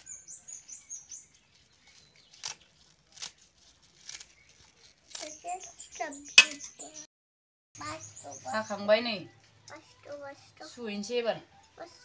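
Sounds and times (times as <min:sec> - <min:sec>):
small bird chirping: 0:00.0 - 0:02.8, 0:04.2 - 0:07.1, 0:07.8 - 0:08.9.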